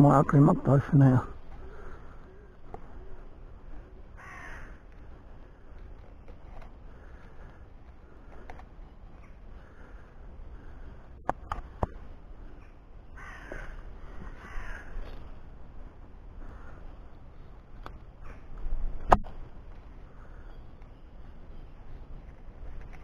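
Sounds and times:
crow cawing: 4.2s - 4.9s, 13.1s - 15.1s.

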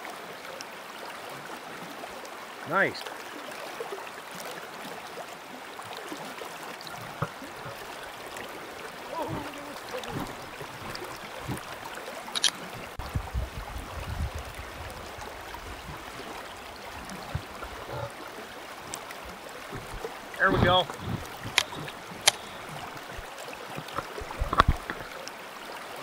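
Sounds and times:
creek current flowing: 0.0s - 26.0s
sharp click: 12.4s - 12.6s.

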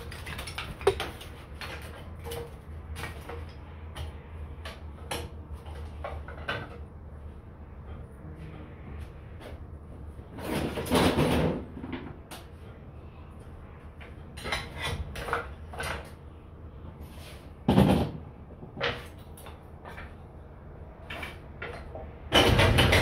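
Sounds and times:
wood pieces knocking on workbench: 0.8s - 1.1s.

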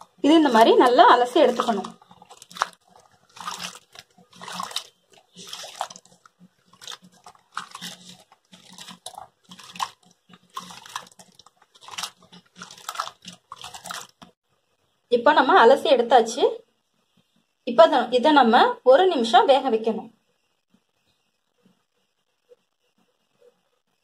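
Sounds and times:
water sloshing in a bowl: 0.0s - 14.4s.

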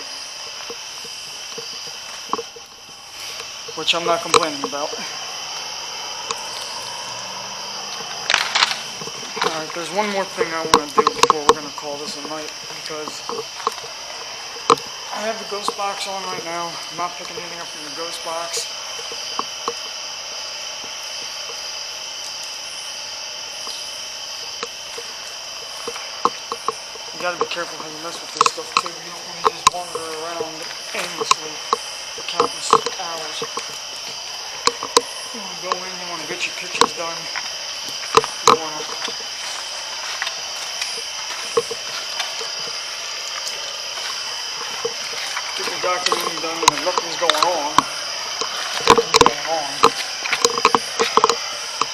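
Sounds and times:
faint high whine: 0.0s - 51.9s
night insects chorus: 0.0s - 51.9s
radio static hiss: 0.0s - 51.9s
soft clicks and ticks: 24.6s - 33.8s.

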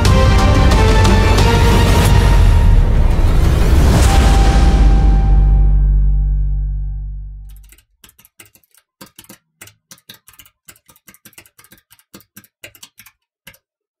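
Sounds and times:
deep musical boom: 0.0s - 7.5s
typing on a keyboard: 7.5s - 13.7s.

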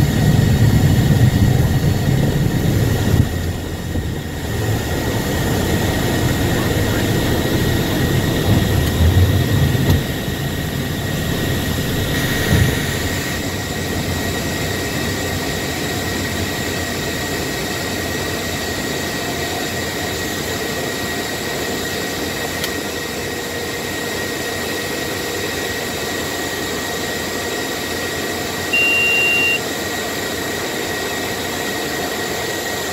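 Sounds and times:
low rumble: 0.0s - 13.4s
jet engines and airflow: 0.0s - 32.9s
faint steady whine: 23.8s - 31.4s
electronic beep: 28.7s - 29.6s.

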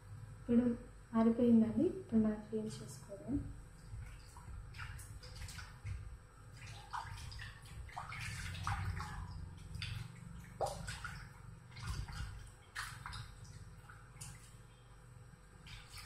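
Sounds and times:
hands splashing in water: 4.0s - 14.6s.

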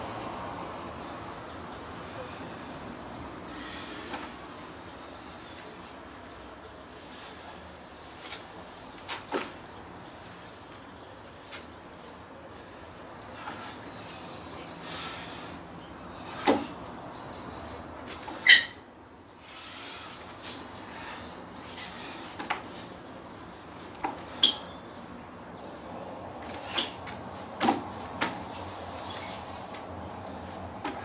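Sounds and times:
outdoor background noise: 0.0s - 31.0s
bird chirps: 16.8s - 26.1s.

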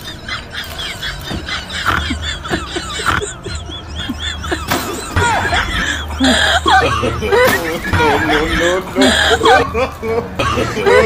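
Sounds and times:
high squeaky chirps: 0.0s - 8.7s.

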